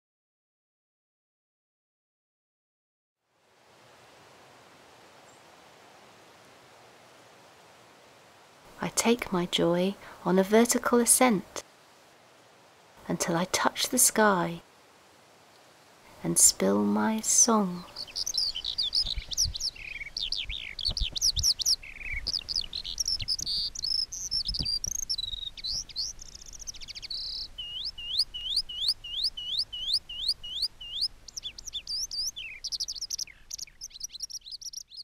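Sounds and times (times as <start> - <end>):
skylark singing: 16.6 - 35.0.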